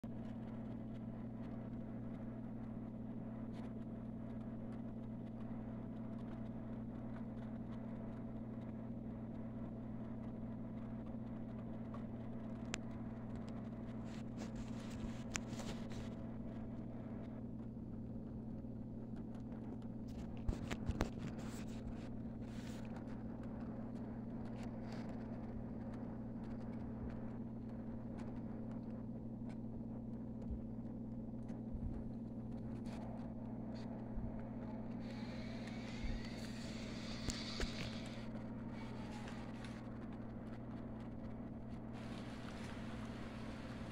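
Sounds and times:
model train electric hum: 32.8s - 43.9s.

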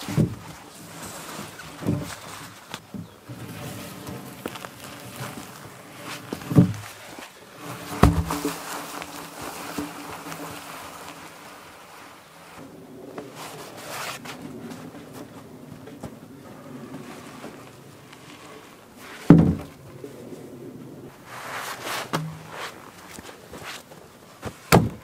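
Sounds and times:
log dragged over wood chips: 0.0s - 25.0s
log thumping against ground: 6.4s - 7.0s, 7.9s - 10.2s, 19.3s - 19.8s, 22.1s - 22.8s, 24.4s - 25.0s.

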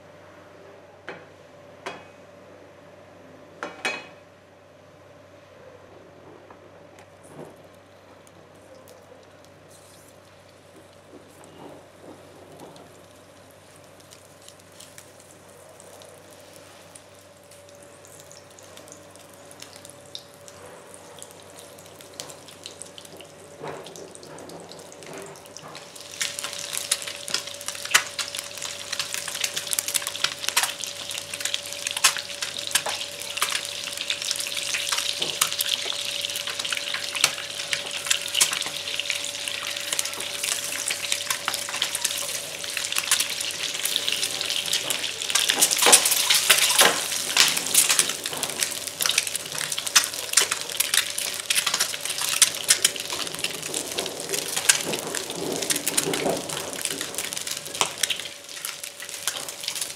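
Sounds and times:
faint steady hum: 0.0s - 59.9s
eggs frying in oil: 7.7s - 59.9s
spattering oil pops: 25.0s - 43.4s.

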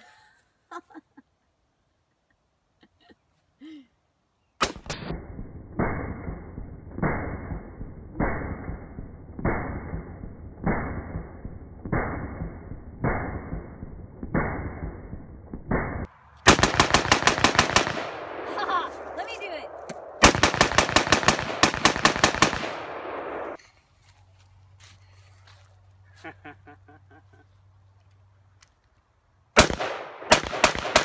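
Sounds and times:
rapid rifle fire: 4.6s - 13.7s, 15.7s - 19.1s, 19.8s - 23.6s, 29.6s - 31.0s
deep slowed gunshot booms: 4.6s - 19.1s
rifle shot: 4.6s - 23.6s, 29.6s - 31.0s.

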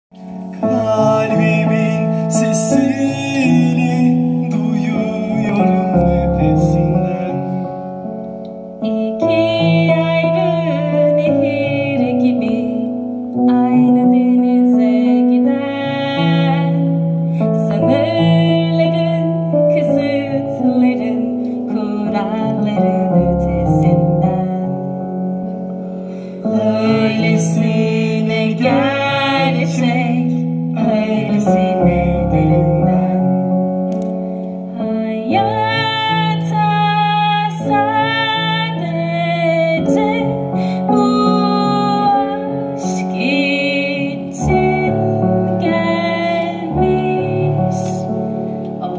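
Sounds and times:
instrumental accompaniment: 0.1s - 48.9s
person singing long notes: 0.3s - 20.8s, 26.2s - 33.6s.

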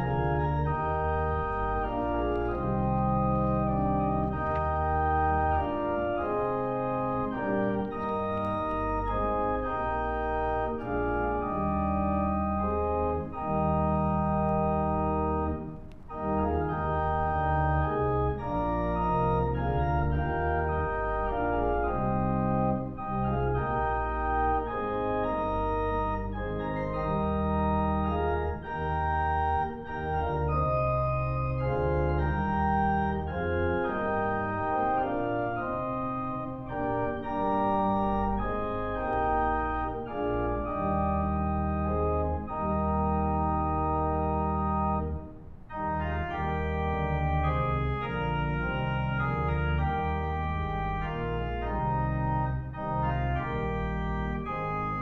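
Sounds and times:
church organ chords: 0.0s - 55.0s.

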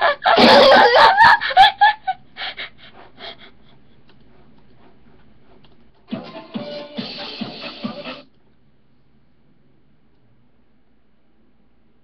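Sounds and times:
boy laughing loudly: 0.0s - 2.7s.

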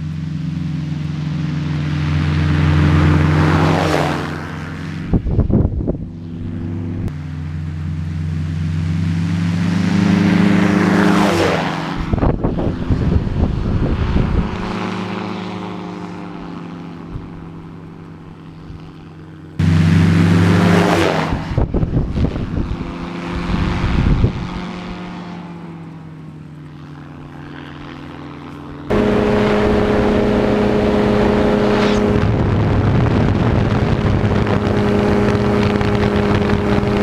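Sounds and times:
ultralight engine and propeller droning: 0.0s - 37.0s
wind noise: 4.8s - 7.2s, 11.8s - 15.0s, 19.6s - 25.1s, 28.9s - 37.0s.

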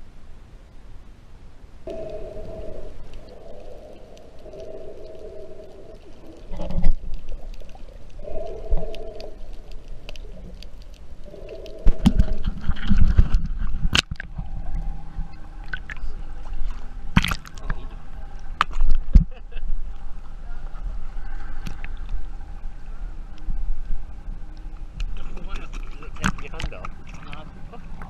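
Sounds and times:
water sloshing and gurgling: 1.9s - 28.0s
sharp water splashes: 17.1s - 17.8s.

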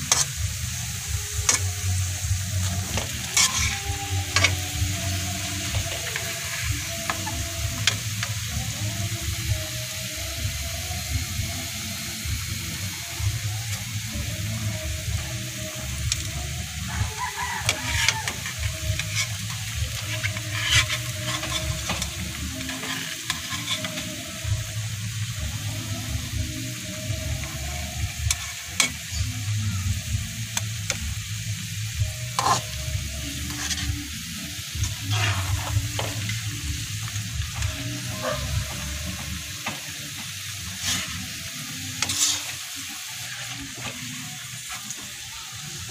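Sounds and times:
bananas sizzling in hot oil: 0.0s - 45.9s
metal spatula scraping pan: 2.6s - 8.0s, 17.2s - 24.2s, 32.3s - 34.0s, 34.6s - 36.5s, 40.7s - 44.0s.

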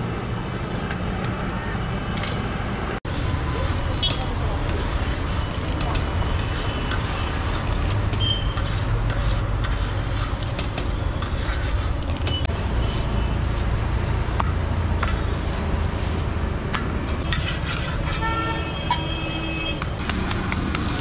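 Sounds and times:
low traffic rumble: 0.0s - 21.0s
metal spatula scraping iron griddle: 6.4s - 13.6s, 17.2s - 18.8s.

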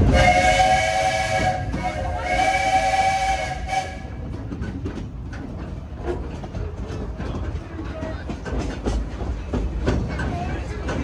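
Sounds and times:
steam whistle blasts: 0.0s - 4.2s
train rolling: 0.0s - 11.0s.

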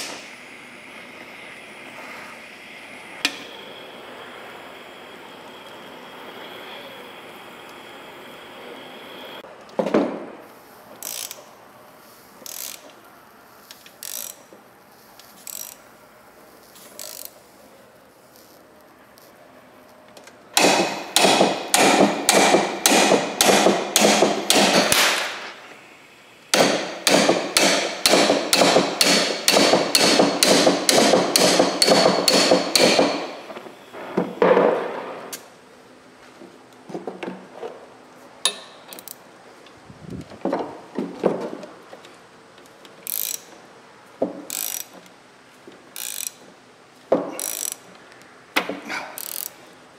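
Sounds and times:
torch hiss: 0.0s - 9.4s
air impact wrench hammering: 20.6s - 25.6s, 26.5s - 33.5s.

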